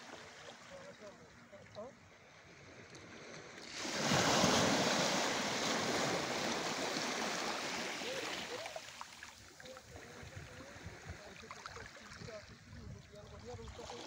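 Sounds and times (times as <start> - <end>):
sea water washing in: 3.5 - 12.2.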